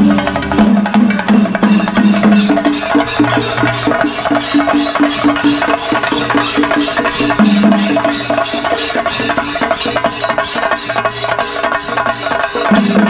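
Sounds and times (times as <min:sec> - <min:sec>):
steady pitched tune: 0:00.0 - 0:10.0
drums beaten with sticks: 0:00.0 - 0:13.0.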